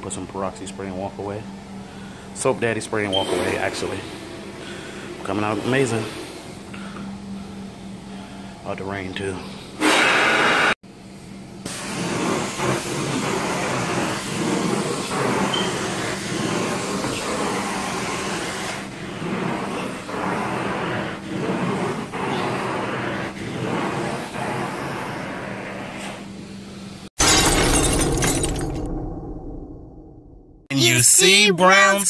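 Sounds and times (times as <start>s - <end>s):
low machine hum: 0.0s - 9.8s, 10.8s - 12.4s
vacuum suction rush and hiss: 3.2s - 6.7s.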